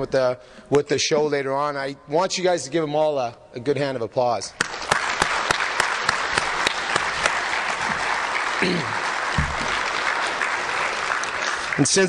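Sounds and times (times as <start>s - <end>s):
loud single claps: 4.6s - 11.4s
audience applauding: 4.6s - 12.0s.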